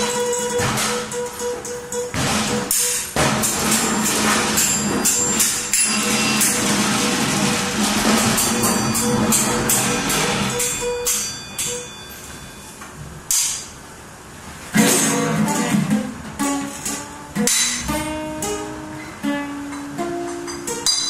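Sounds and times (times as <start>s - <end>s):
jangling metallic percussion: 2.7s - 12.8s.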